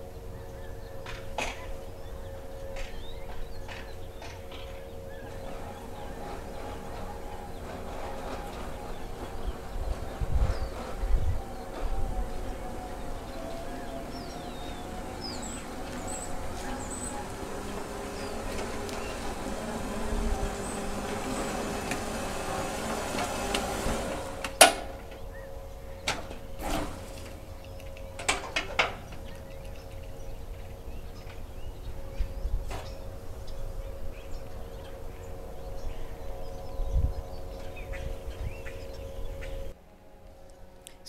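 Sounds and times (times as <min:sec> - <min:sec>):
electric motor hum: 0:01.9 - 0:40.6
loose body panels clunking: 0:04.2 - 0:25.3.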